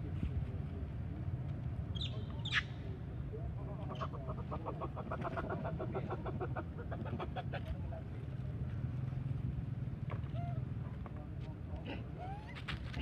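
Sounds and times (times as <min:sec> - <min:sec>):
animal clucking calls: 0:03.8 - 0:07.8.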